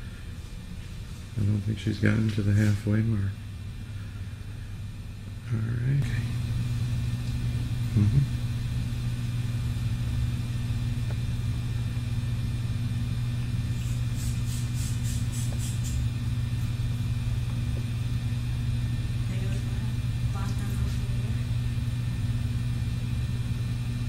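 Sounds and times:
steady low hum: 0:00.0 - 0:24.0
scissors snipping hair: 0:13.8 - 0:16.0.

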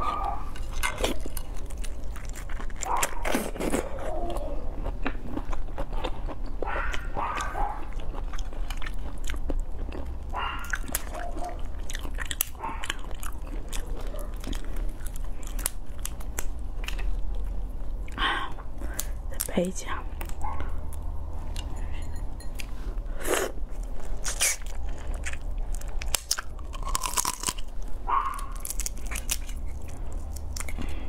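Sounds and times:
chewing: 0:00.0 - 0:19.5, 0:20.1 - 0:31.0
shell crackling as it is peeled: 0:25.7 - 0:31.0.

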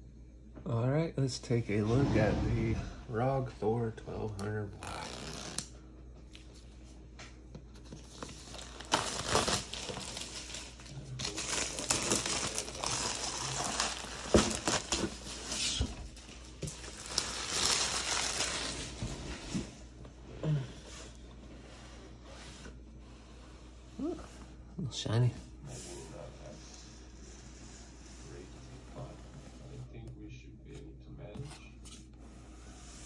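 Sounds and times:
plastic shrink wrap tearing and crinkling: 0:04.8 - 0:05.7, 0:08.0 - 0:19.0.

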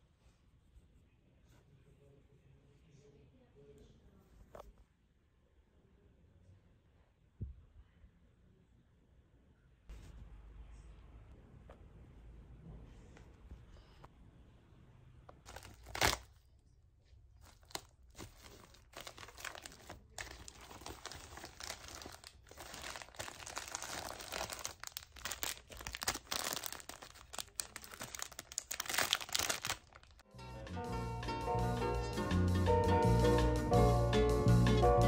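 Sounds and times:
packaging crinkling and tearing: 0:15.5 - 0:16.4, 0:17.4 - 0:30.2.

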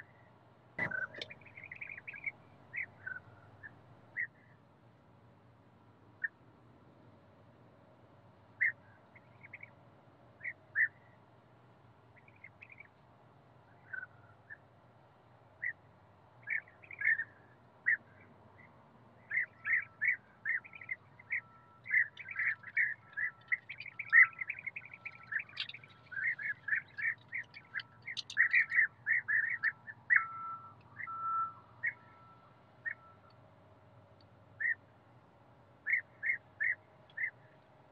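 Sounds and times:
bee-eaters calling: 0:00.8 - 0:04.3, 0:16.4 - 0:17.3, 0:19.3 - 0:32.2.

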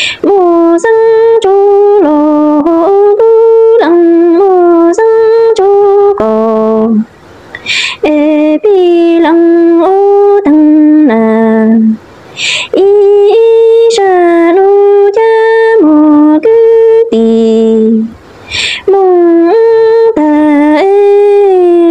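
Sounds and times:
quick breath: 0:00.0 - 0:00.2, 0:07.5 - 0:08.0, 0:12.3 - 0:12.7, 0:18.4 - 0:18.9
woman singing unaccompanied: 0:00.0 - 0:21.9.

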